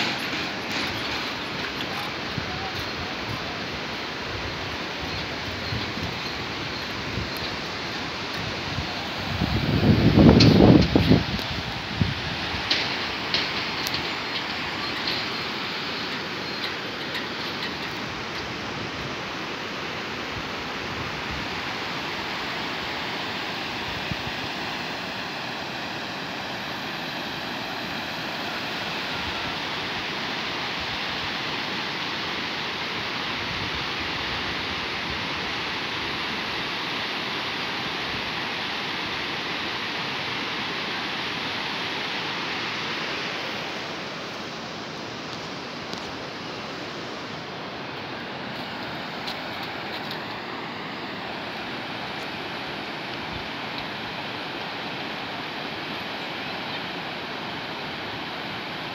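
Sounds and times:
fast-flowing river rushing: 0:00.0 - 0:58.9.

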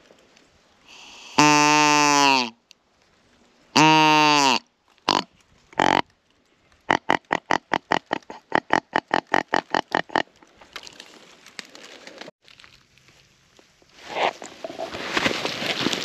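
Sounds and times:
deer grunt call: 0:01.3 - 0:02.6, 0:03.8 - 0:06.0, 0:06.9 - 0:10.3
faint rustling: 0:10.4 - 0:16.0.

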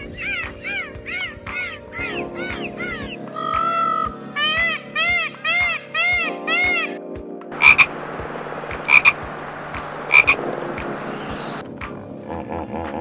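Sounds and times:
peacock calling: 0:00.0 - 0:07.0, 0:07.6 - 0:11.6
light music: 0:00.0 - 0:13.0
steady background hiss: 0:07.5 - 0:11.7.

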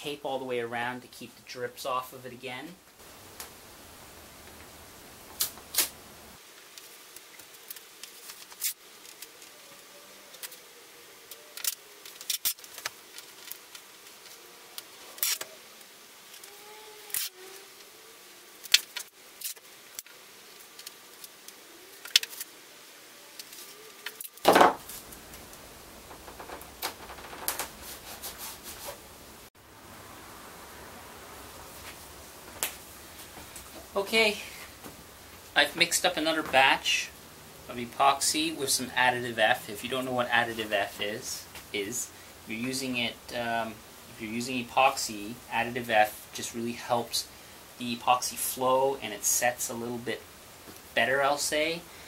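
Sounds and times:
long tape rip: 0:05.3 - 0:06.0, 0:06.7 - 0:22.6, 0:23.3 - 0:29.0
masking tape ticks and tearing: 0:05.4 - 0:06.0, 0:06.7 - 0:09.5, 0:11.3 - 0:15.5, 0:16.3 - 0:17.9, 0:18.6 - 0:22.5.

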